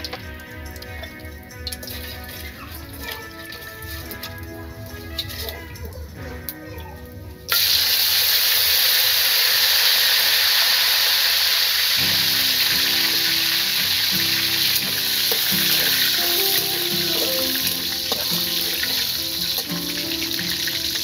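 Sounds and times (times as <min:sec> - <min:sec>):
hot oil sizzling in wok: 0:00.0 - 0:05.6, 0:07.5 - 0:21.0.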